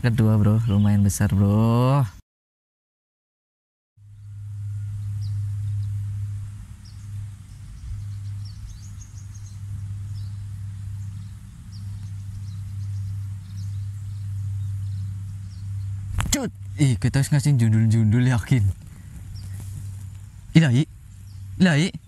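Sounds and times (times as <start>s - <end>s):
steady low rumble: 4.0s - 22.0s
high bird chirps: 4.1s - 16.2s, 18.9s - 19.8s, 20.9s - 21.8s.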